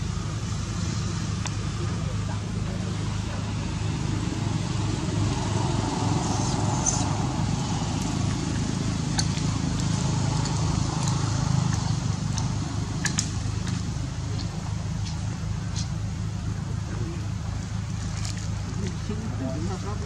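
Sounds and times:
low background rumble: 0.0s - 20.0s
sharp clicks: 9.1s - 15.9s.

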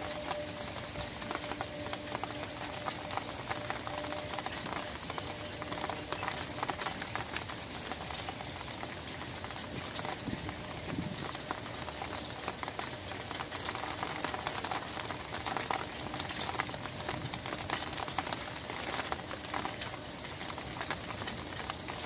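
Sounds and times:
rain on an umbrella: 0.0s - 22.0s.

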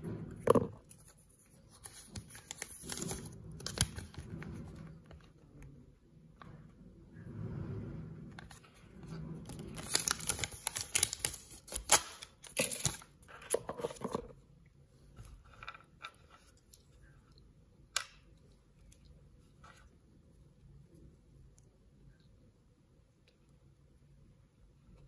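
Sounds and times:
paper rustling and crinkling: 0.8s - 4.8s, 9.4s - 14.3s.

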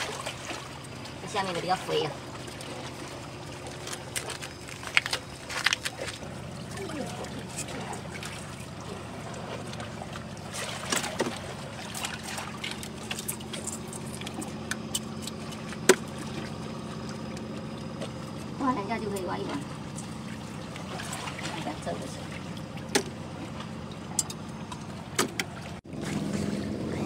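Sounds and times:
seawater trickling and sloshing: 0.0s - 27.0s.

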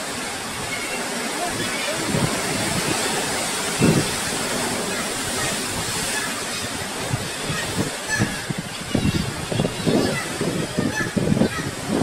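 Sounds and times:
rushing water: 0.0s - 12.0s
wind buffeting microphone: 1.4s - 12.0s.

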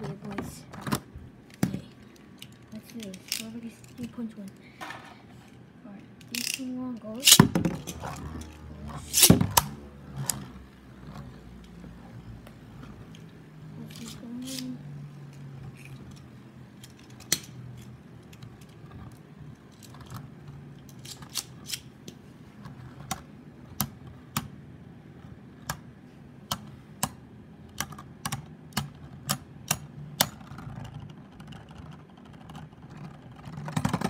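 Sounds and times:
spinning tops clacking together: 6.2s - 8.5s, 9.1s - 9.4s.

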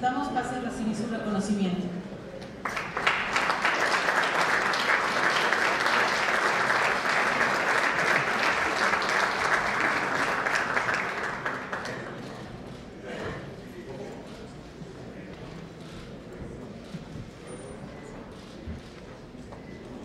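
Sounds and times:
audience applauding: 2.6s - 12.6s.

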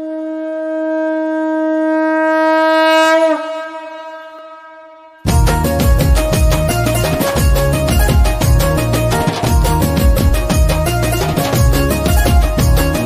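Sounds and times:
conch shell blown: 0.0s - 7.0s
devotional music with a beat: 5.3s - 13.0s.

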